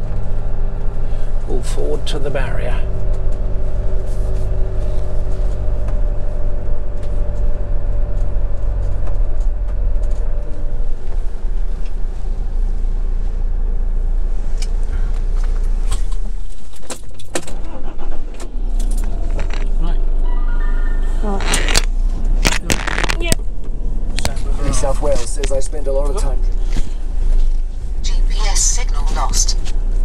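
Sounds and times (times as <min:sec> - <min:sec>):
diesel engine idling: 0:00.0 - 0:30.0
sharp clicks and rattles: 0:14.6 - 0:20.1, 0:21.4 - 0:27.0.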